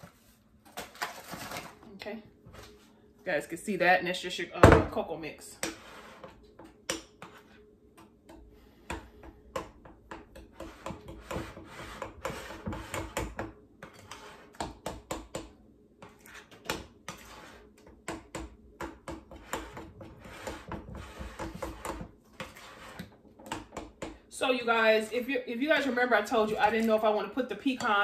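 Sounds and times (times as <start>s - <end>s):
utensil scraping glass bowl: 5.6s - 6.4s, 10.4s - 14.6s, 16.0s - 17.8s, 19.2s - 23.2s.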